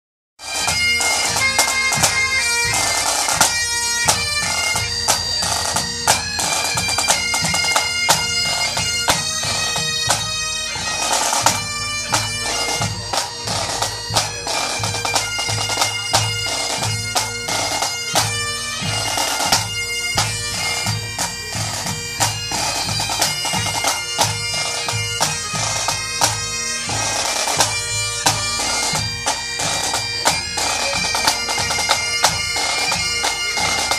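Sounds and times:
bagpipes playing melody: 0.4s - 33.9s
rattling snare drums: 10.9s - 33.9s.

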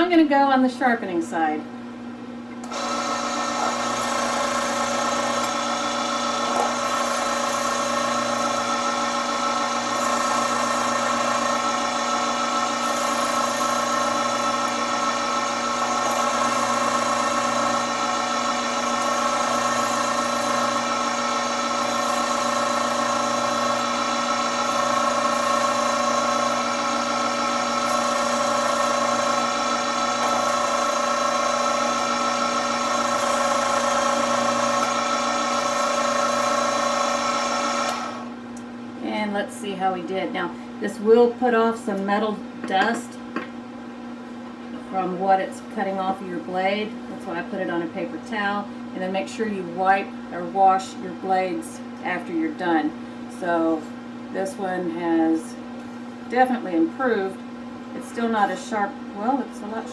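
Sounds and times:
electric knife sharpener whining: 2.6s - 38.3s.

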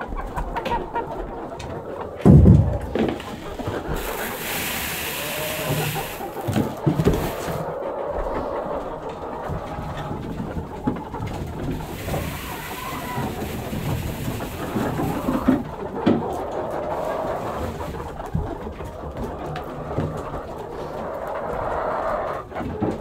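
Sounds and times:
hens clucking: 0.0s - 23.0s
low rumble: 2.2s - 3.7s
knocks: 2.2s - 3.8s
rustling: 2.2s - 7.7s, 11.5s - 15.6s.

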